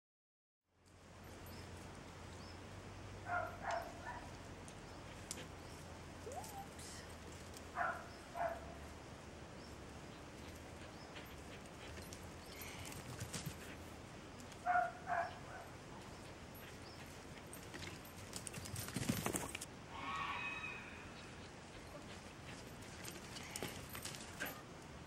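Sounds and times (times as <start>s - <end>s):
dog barking: 3.3s - 4.3s, 7.8s - 8.8s, 14.6s - 15.7s.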